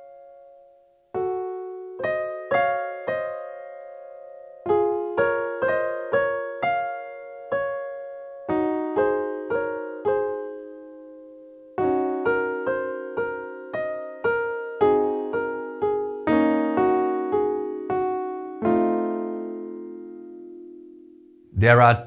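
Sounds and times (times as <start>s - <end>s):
gentle piano playing: 0.0s - 21.5s.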